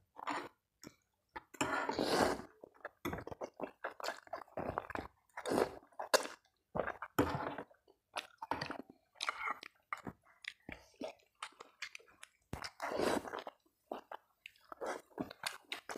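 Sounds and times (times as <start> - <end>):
person slurping noodles: 1.6 - 7.7, 12.7 - 13.5
wet chewing: 2.8 - 15.9.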